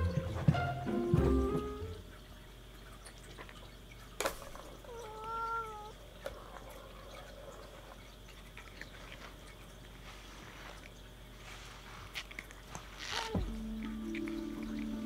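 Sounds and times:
cat meowing: 4.8s - 6.0s.

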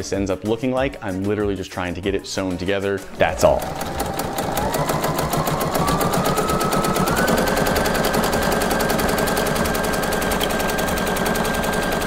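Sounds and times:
sewing machine stitching clatter: 3.1s - 12.0s
sewing machine motor whine: 3.2s - 12.0s.

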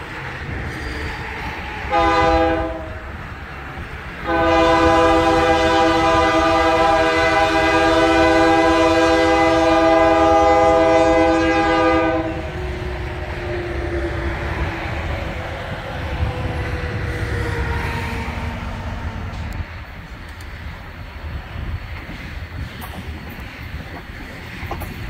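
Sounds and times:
locomotive air horn chord: 1.9s - 3.1s, 4.2s - 12.5s.

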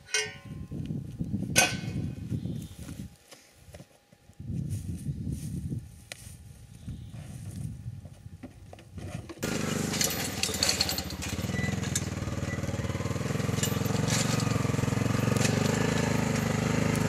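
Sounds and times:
rattles and clicks: 9.2s - 17.0s
atv engine running: 9.4s - 17.0s.

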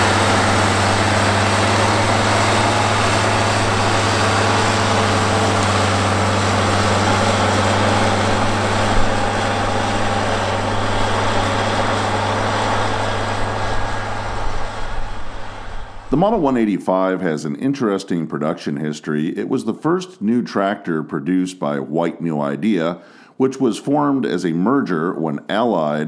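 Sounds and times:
tractor diesel engine under load: 0.0s - 16.7s.

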